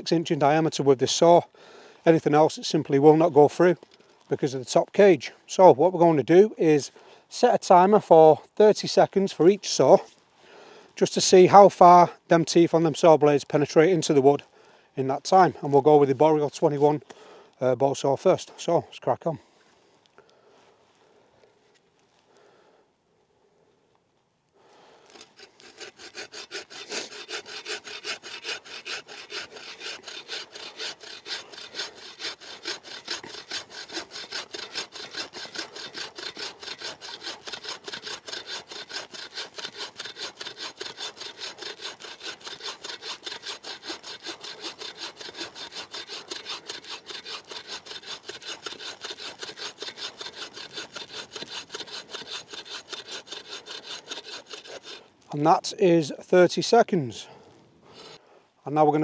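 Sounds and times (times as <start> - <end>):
bow saw cutting log: 25.1 - 55.6.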